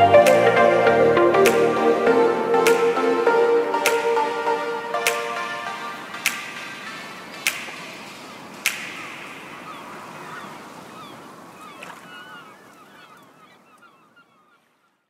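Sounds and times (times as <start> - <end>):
outro music: 0.0 - 7.5.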